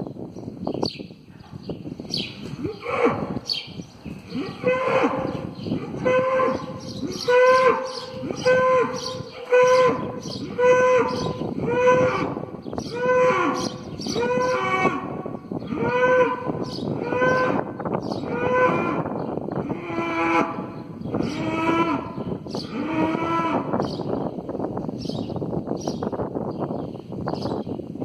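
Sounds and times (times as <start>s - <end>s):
cattle mooing: 4.3s - 17.6s.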